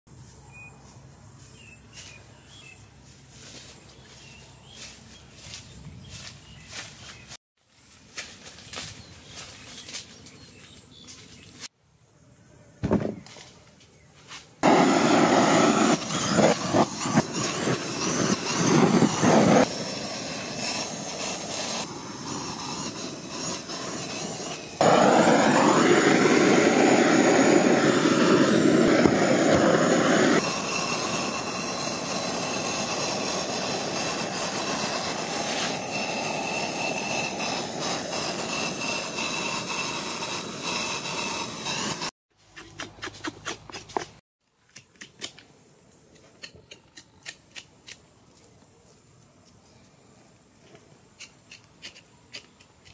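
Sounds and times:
blowtorch hissing flame: 14.6 - 42.2.

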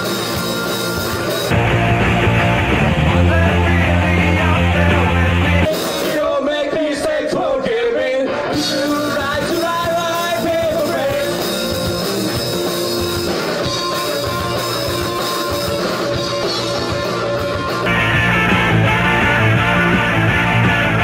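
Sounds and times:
live rock band playing: 0.0 - 6.6, 8.2 - 21.0
bass-heavy rock recording: 0.0 - 21.0
person singing: 3.0 - 17.7.

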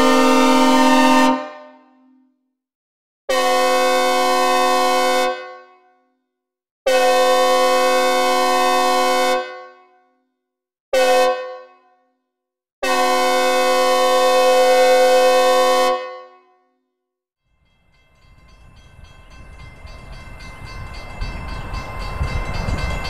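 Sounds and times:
locomotive horn chord blasts: 0.0 - 1.9, 3.3 - 5.7, 6.9 - 9.7, 11.0 - 11.7, 12.8 - 16.2.

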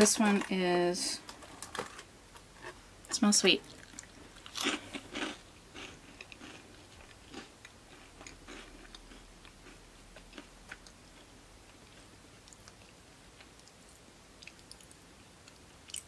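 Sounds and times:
cracker crunching while chewed: 3.7 - 16.0.

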